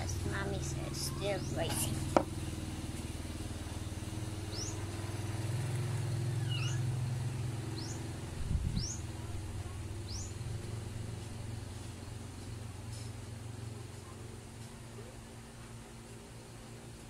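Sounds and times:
vehicle engine humming: 0.0s - 16.5s
bird chirping: 4.5s - 4.8s, 6.2s - 6.9s.

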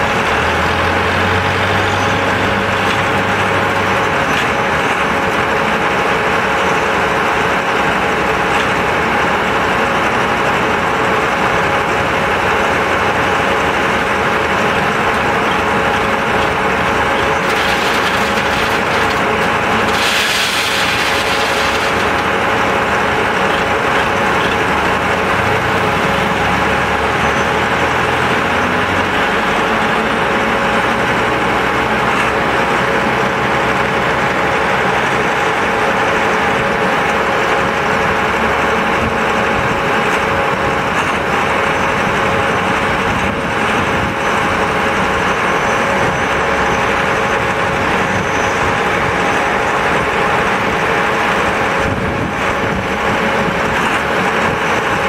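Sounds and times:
deep engine rumble: 0.0s - 30.8s
concrete pump machine drone: 0.0s - 55.0s.

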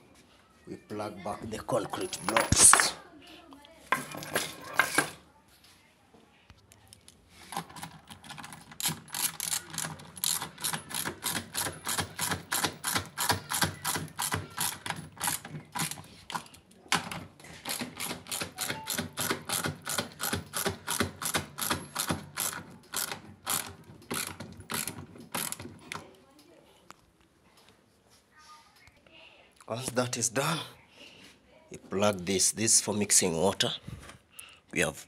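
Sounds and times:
ratchet clicking: 8.8s - 16.0s, 17.7s - 25.6s.

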